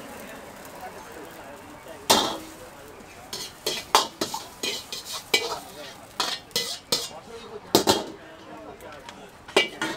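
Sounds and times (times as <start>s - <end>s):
frying sizzle: 0.0s - 9.9s
metal ladle scraping wok: 3.3s - 8.1s, 9.6s - 9.9s.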